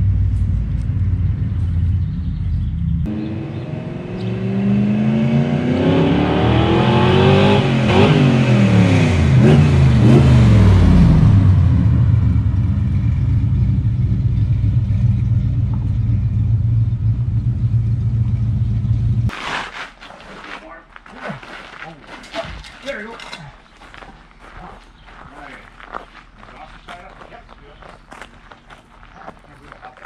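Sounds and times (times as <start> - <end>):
car engine revving: 0.0 - 19.3.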